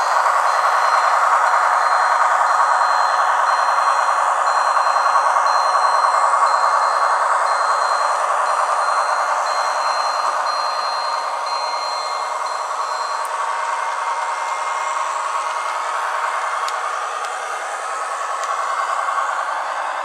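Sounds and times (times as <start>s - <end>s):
diesel engine sound from small speaker: 0.0s - 20.0s
high beep: 0.1s - 13.3s.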